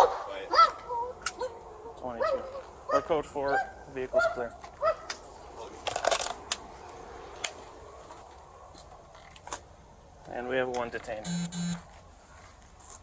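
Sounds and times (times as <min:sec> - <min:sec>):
dog barking: 0:00.0 - 0:05.1.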